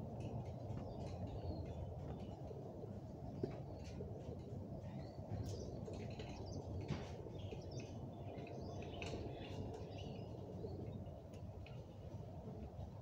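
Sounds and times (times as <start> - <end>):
small birds chirping: 4.8 - 11.2.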